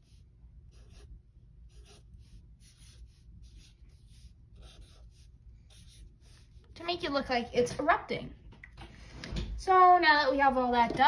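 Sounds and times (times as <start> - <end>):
marker scratching on paper: 0.0 - 7.2.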